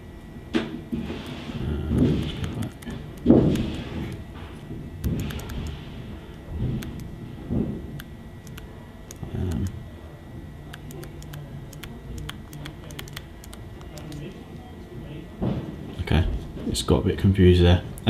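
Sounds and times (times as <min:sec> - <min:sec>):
stylus tapping on touchscreen: 0:10.7 - 0:14.2.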